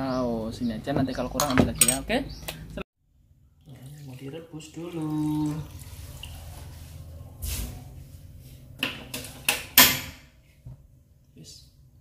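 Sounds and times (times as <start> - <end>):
water pouring into a wok: 3.7 - 6.3.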